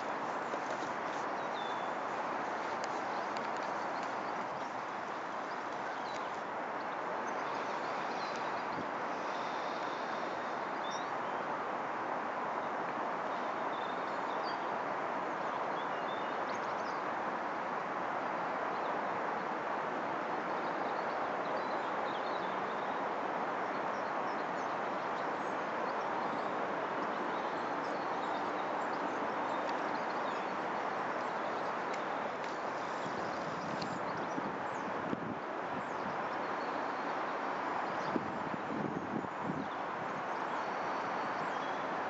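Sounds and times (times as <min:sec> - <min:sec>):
small birds chirping: 0:00.0 - 0:06.4, 0:25.4 - 0:35.0.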